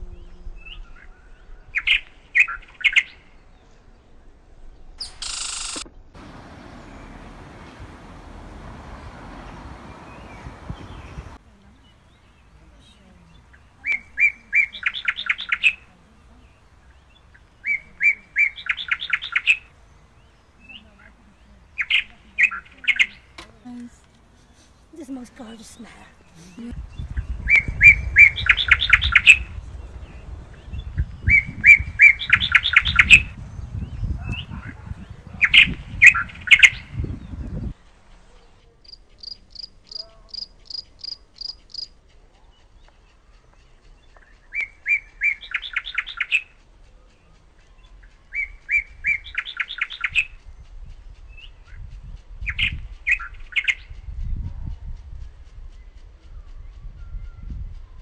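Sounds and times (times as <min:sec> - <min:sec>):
songbird singing with trill: 0:00.0 - 0:05.2, 0:06.2 - 0:54.4, 0:55.2 - 0:58.0
low rumble: 0:06.1 - 0:14.2, 0:26.0 - 0:37.8.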